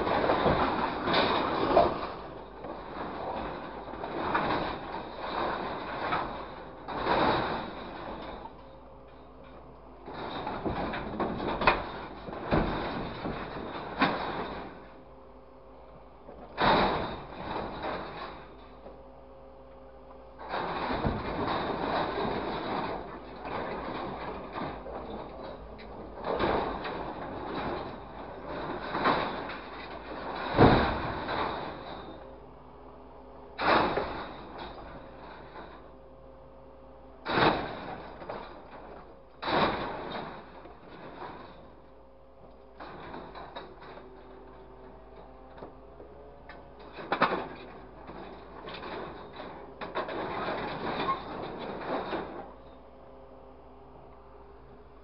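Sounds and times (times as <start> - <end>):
scrap metal clattering and scraping: 0.0 - 15.2, 16.2 - 19.2, 20.2 - 36.1, 37.2 - 53.0
heavy metal crash: 33.6 - 35.8, 37.2 - 41.7.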